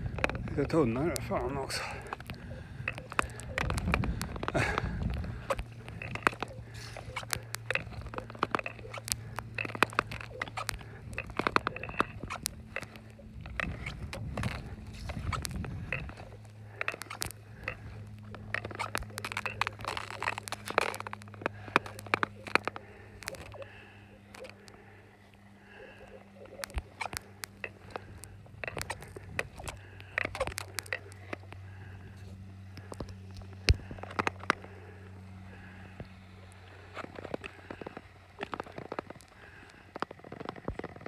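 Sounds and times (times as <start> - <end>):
ice skates gliding on ice: 0.0 - 23.7
ice cracking and ticking: 0.0 - 41.0.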